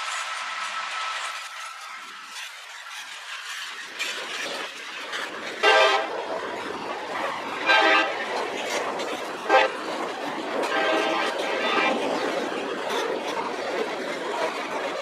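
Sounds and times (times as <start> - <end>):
approaching train rumble: 0.0 - 15.0
locomotive air horn blasts: 5.6 - 6.1, 7.7 - 8.2, 9.5 - 9.7, 10.7 - 11.3.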